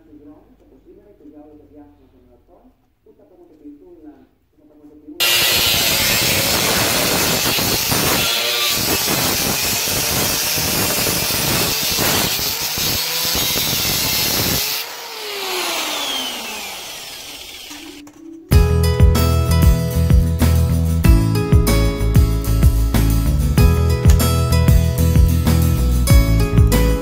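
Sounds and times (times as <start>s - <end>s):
grinder disc winding down: 5.2s - 18.2s
angle grinder cutting sheet metal: 5.2s - 18.4s.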